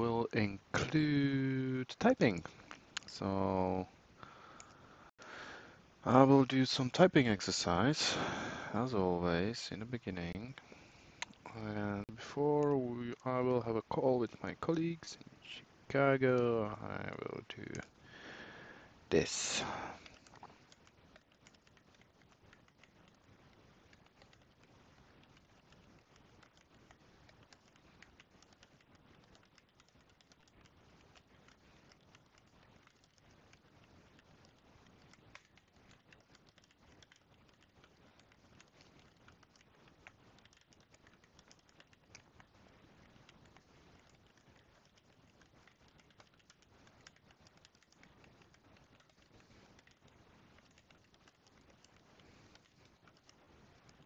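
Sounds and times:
computer keyboard typing: 16.0s - 54.0s.

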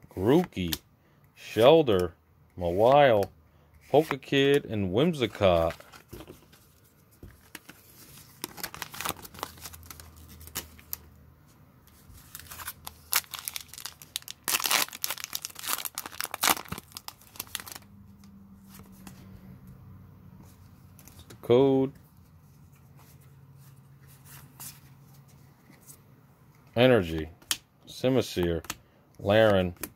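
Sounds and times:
foil wrapper crinkling and ripping: 8.2s - 11.0s, 12.2s - 17.9s.

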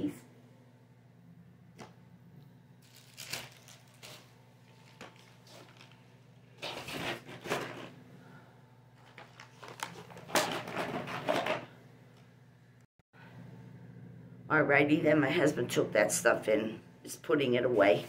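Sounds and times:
shopping bag rustling: 2.8s - 7.9s.

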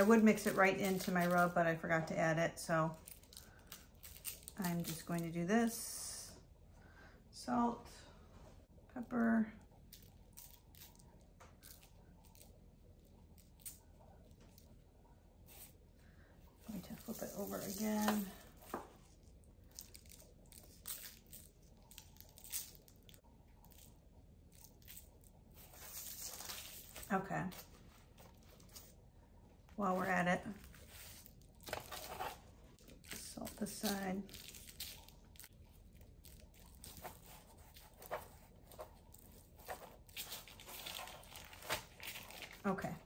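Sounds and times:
parchment paper rustling: 16.6s - 29.0s, 29.8s - 43.0s.

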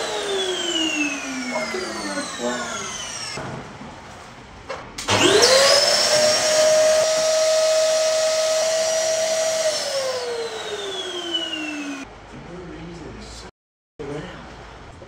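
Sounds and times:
vacuum cleaner motor whine: 0.0s - 3.4s, 5.1s - 12.1s.

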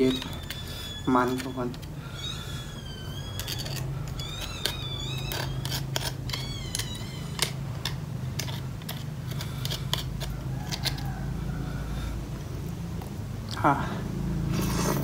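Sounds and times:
high wavering animal calls: 0.0s - 7.6s.

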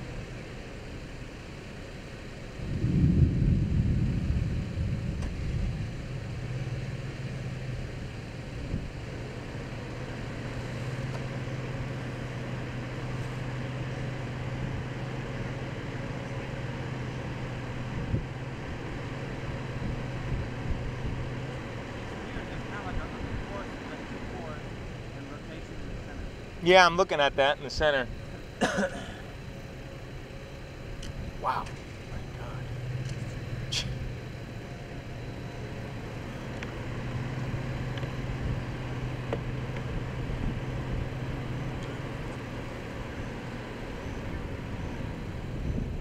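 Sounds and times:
vehicle engine idling: 0.0s - 46.0s
low rumble: 2.5s - 7.0s.

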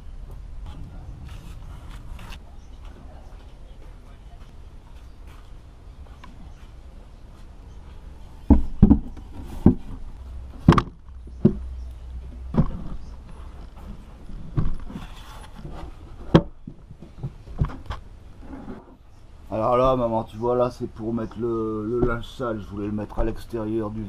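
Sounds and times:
low steady rumble: 0.0s - 6.1s, 6.8s - 24.0s
wooden lid and boards knocking: 8.5s - 10.0s, 10.6s - 11.7s.

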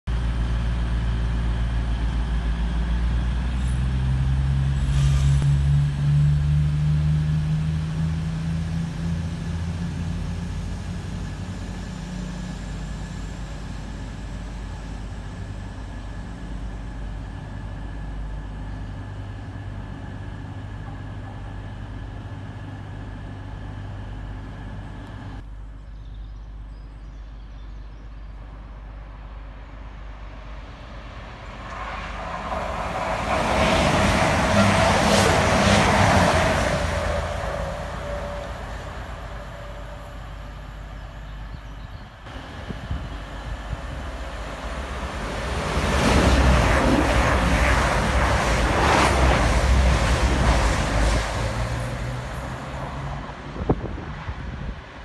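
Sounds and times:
diesel train engines: 0.1s - 55.0s.

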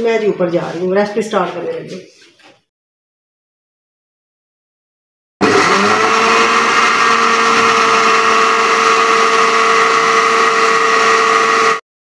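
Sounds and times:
blender motor whining: 5.4s - 11.8s.

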